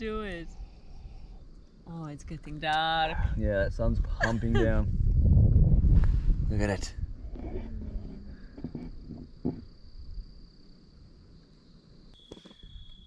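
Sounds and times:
insect trill: 0.0 - 3.3, 6.9 - 13.0.

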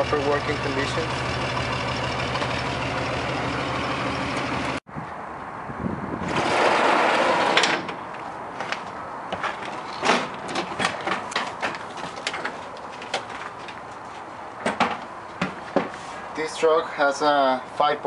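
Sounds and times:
sliding door scraping: 6.2 - 8.0.

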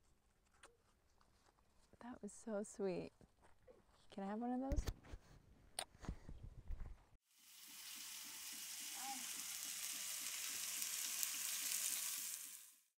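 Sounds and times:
food sizzling in a pan: 7.3 - 13.0.

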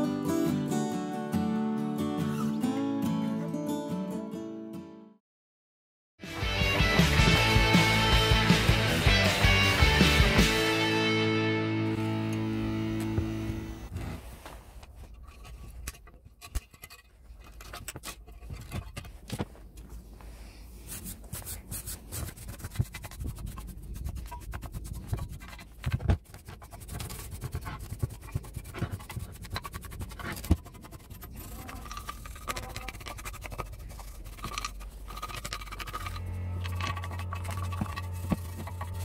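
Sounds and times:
wire brush scrubbing rust: 13.6 - 19.3, 20.8 - 39.0.

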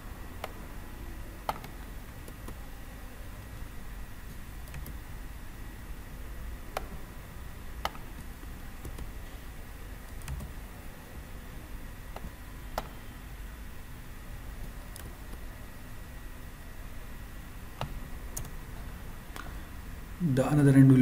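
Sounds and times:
low room hum: 0.0 - 21.0
computer mouse clicks: 1.4 - 2.6, 4.3 - 5.0, 6.7 - 7.1, 7.8 - 9.2, 10.1 - 10.6, 12.1 - 13.0, 14.6 - 15.5, 17.8 - 18.6.

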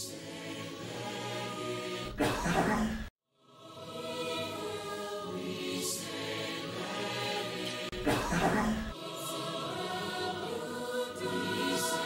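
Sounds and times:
choir singing with music: 0.0 - 12.0
loud cough: 2.2 - 3.1, 8.0 - 8.9.

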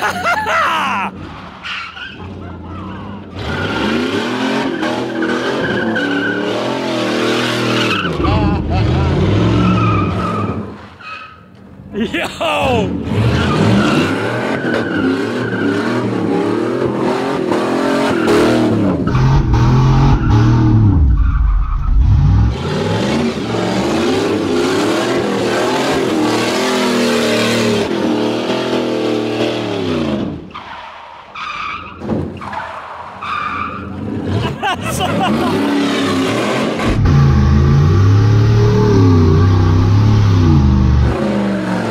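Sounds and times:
tires squealing: 0.0 - 11.5, 12.7 - 41.9
engine revving hard: 34.2 - 41.9.

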